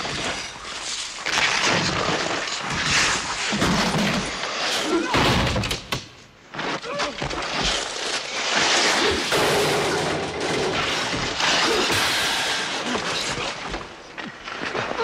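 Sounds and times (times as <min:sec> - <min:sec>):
skate blades scraping ice: 0:00.0 - 0:05.1, 0:06.5 - 0:09.3.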